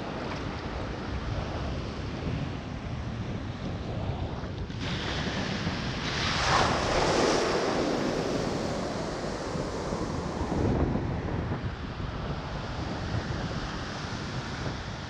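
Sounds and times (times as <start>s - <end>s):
wind rumbling on microphone: 0.0s - 15.0s
ocean waves crashing: 6.0s - 10.9s.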